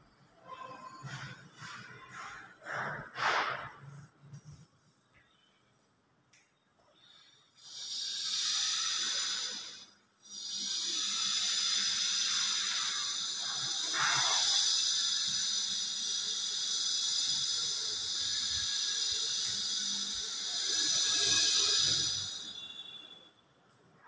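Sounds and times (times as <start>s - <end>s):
high-pitched hiss: 7.0s - 23.2s.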